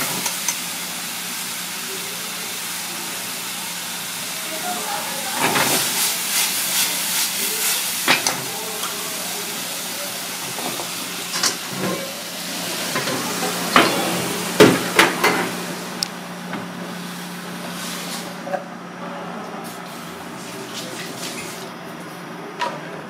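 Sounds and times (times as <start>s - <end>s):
mushrooms sizzling in a skillet: 0.2s - 11.3s.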